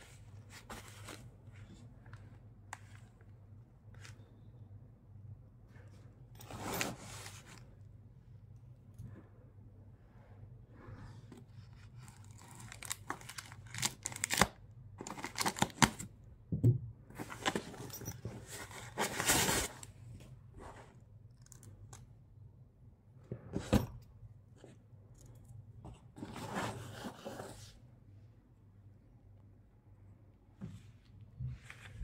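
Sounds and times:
scissors cutting plastic wrap: 12.2 - 15.9.

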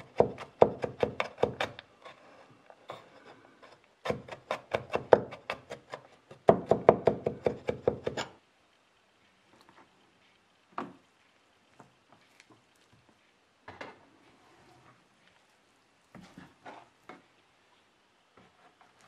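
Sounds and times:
knife chopping on wooden board: 0.0 - 1.8, 4.1 - 8.3.

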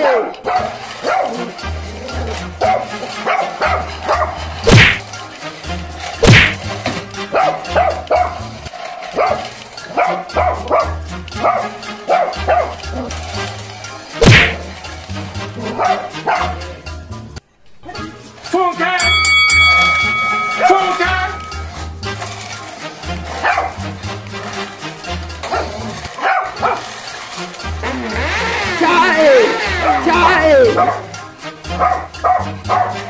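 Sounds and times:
small dog barking: 0.0 - 1.5, 2.6 - 4.9, 7.4 - 8.4, 9.2 - 12.8, 15.7 - 16.6, 23.4 - 23.7, 25.5 - 26.8, 30.8 - 31.1, 31.8 - 33.0
music with thumping bass beat: 4.6 - 5.1, 6.2 - 7.0, 14.2 - 14.8.

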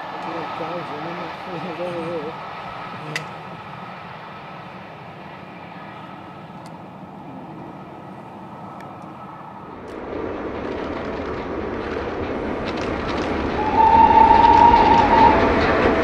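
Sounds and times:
distant train rumble: 0.0 - 16.0
steam locomotive approaching: 0.0 - 16.0.

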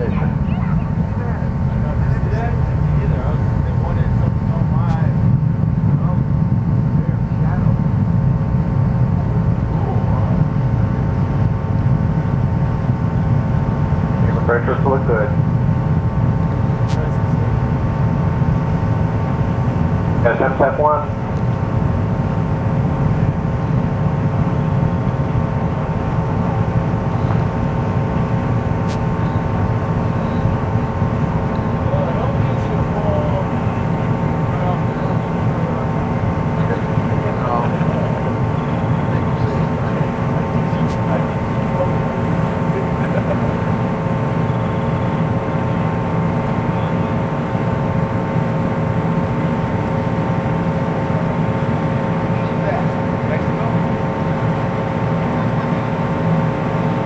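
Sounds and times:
distant rocket motor rumble: 0.0 - 57.0
faint hum: 0.0 - 57.0.

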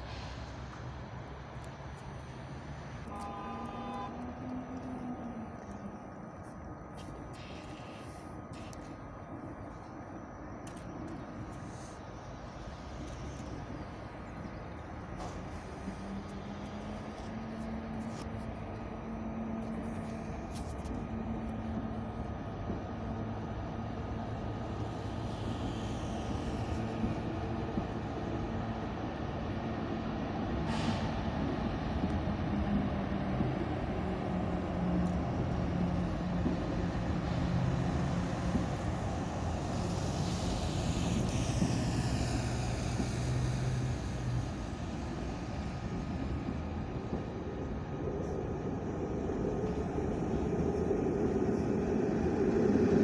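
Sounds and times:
sharp air hiss: 0.0 - 0.9, 7.0 - 9.0, 24.6 - 27.5, 30.6 - 31.3, 39.1 - 45.8
train electrical hum: 0.0 - 53.0
faint high whining tones: 3.0 - 28.6.

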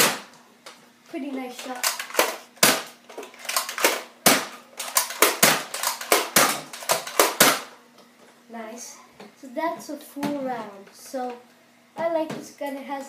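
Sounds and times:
toy blaster clacking and popping: 1.6 - 7.7.

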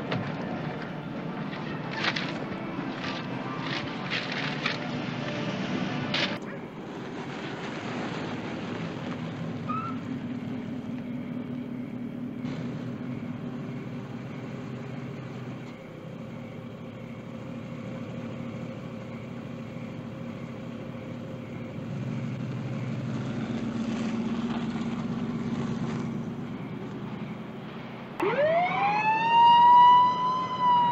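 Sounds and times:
car engine running: 6.8 - 28.1.

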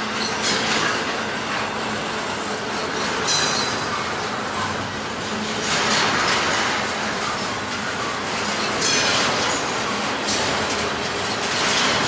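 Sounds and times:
train wheels rumbling on rail: 0.0 - 12.0
high wheel squeal: 2.6 - 5.0.

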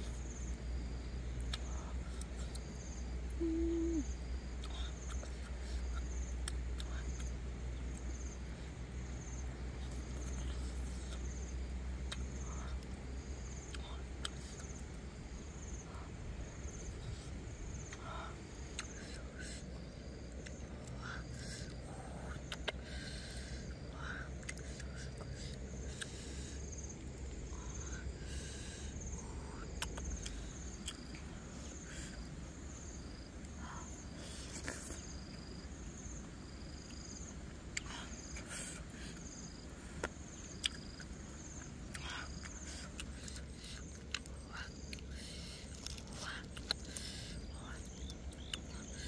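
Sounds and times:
chewing and smacking: 1.4 - 2.7, 20.4 - 23.5, 29.7 - 31.3, 39.9 - 49.0.

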